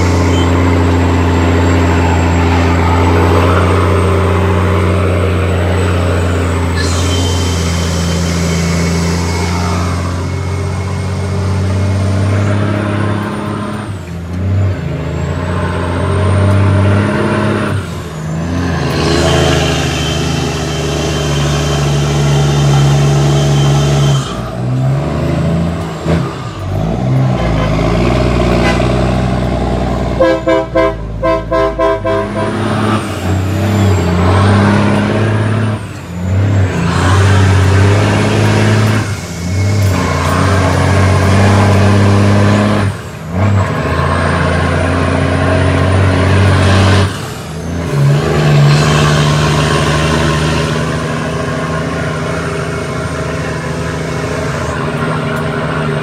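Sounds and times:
diesel truck engine running: 0:00.0 - 0:56.0.

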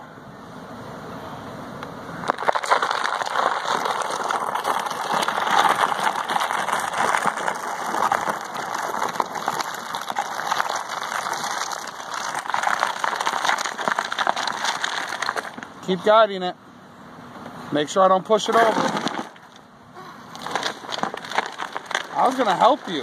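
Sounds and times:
trash can scraping on pavement: 0:02.3 - 0:16.2, 0:18.0 - 0:19.7, 0:20.3 - 0:23.0.

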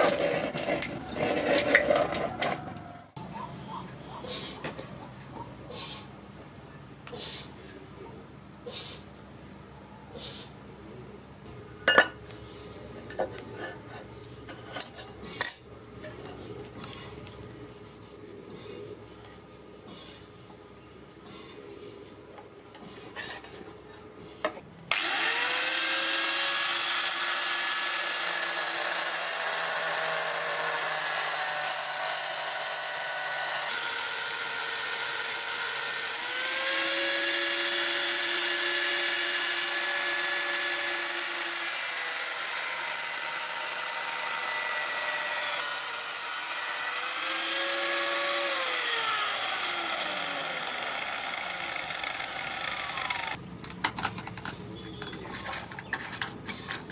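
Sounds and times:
angle grinder grinding steel: 0:24.9 - 0:53.4.

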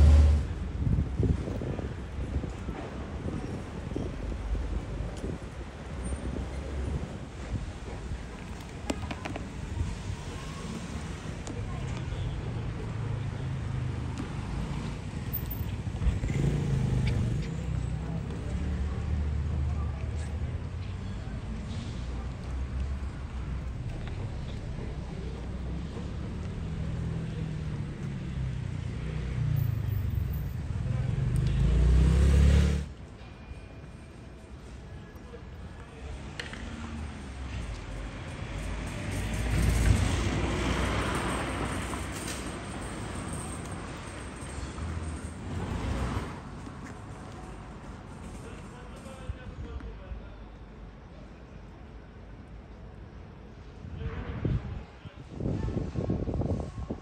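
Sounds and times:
motor vehicle passing by: 0:00.0 - 0:00.6, 0:16.0 - 0:19.8, 0:25.7 - 0:32.9.

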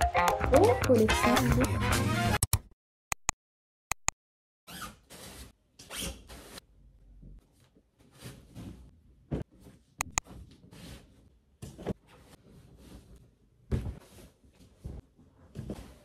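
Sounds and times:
sharp clicks: 0:02.4 - 0:04.2, 0:10.0 - 0:10.2
bedding rustling and thumping: 0:11.6 - 0:16.0.

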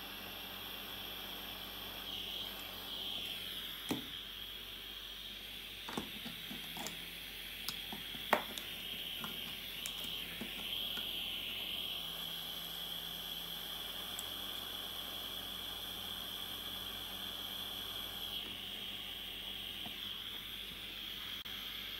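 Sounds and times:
soldering torch hissing: 0:00.0 - 0:21.9.

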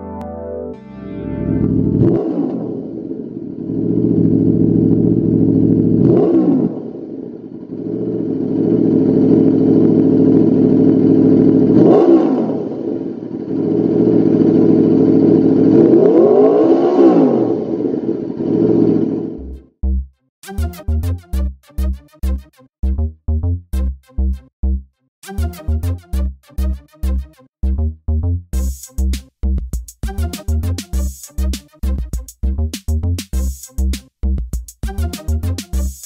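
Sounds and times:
motorcycle engine idling and revving: 0:01.8 - 0:20.0.

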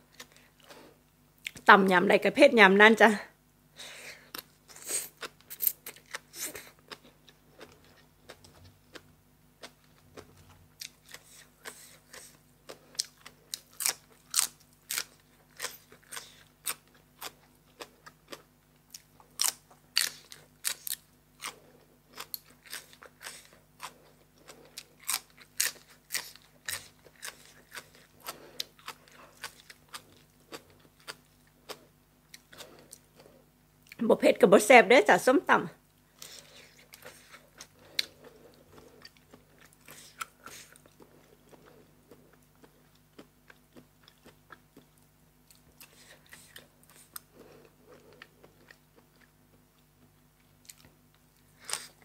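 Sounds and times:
wet chewing: 0:04.3 - 0:33.2.

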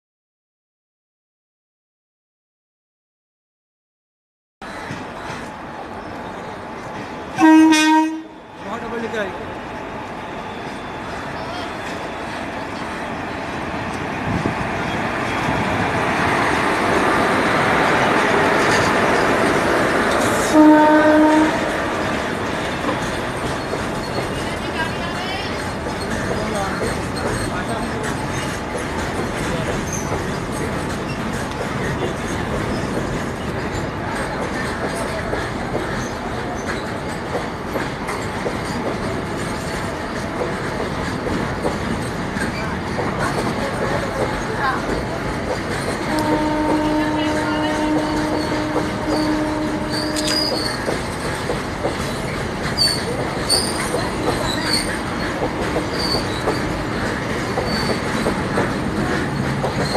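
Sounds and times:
freight train wheels rumbling on rail: 0:04.6 - 0:59.9
wheels clacking over rail joints: 0:13.6 - 0:59.9.

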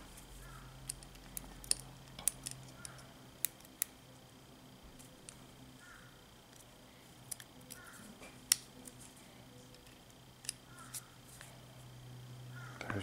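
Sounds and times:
small metal parts clicking: 0:00.8 - 0:03.9.

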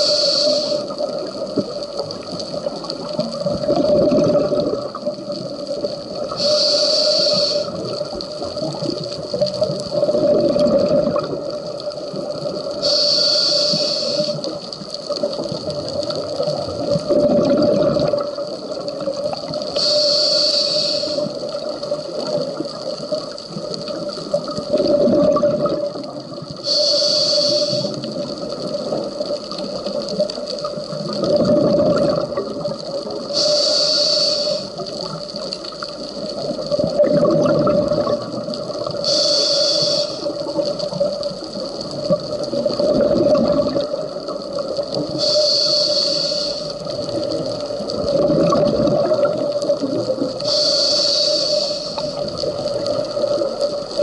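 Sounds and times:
regulator inhale hiss: 0:00.0 - 0:01.8, 0:05.8 - 0:08.1, 0:12.0 - 0:14.7, 0:18.0 - 0:22.7, 0:26.5 - 0:28.4, 0:33.0 - 0:35.4, 0:38.8 - 0:41.1, 0:44.4 - 0:47.9, 0:50.4 - 0:54.0
exhaled air bubbling: 0:00.0 - 0:54.0
steady hum: 0:33.3 - 0:34.8, 0:39.0 - 0:40.6, 0:45.2 - 0:47.2, 0:50.4 - 0:52.4.

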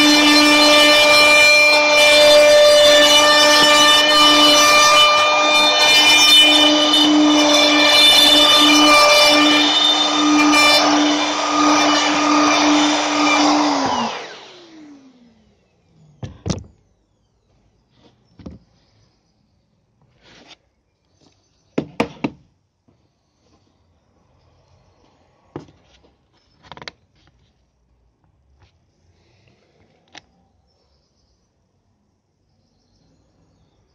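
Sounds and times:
motor winding down whine: 0:00.0 - 0:16.2
router cutting wood: 0:00.0 - 0:16.7.

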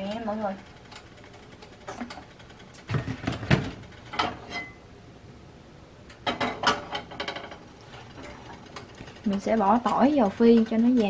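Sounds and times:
pan clattering on burner: 0:02.8 - 0:04.8, 0:06.2 - 0:11.0.

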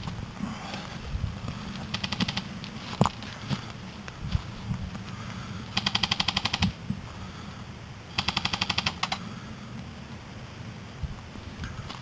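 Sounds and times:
airsoft gun full-auto bursts: 0:01.9 - 0:02.5, 0:05.7 - 0:06.8, 0:08.1 - 0:09.2.

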